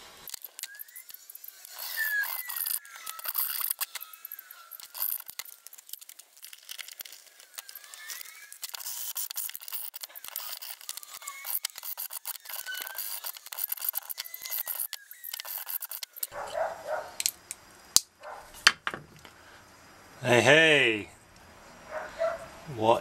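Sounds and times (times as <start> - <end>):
metal scraping and clicks: 0.2 - 16.6
thin sliding squeaks: 0.3 - 16.7.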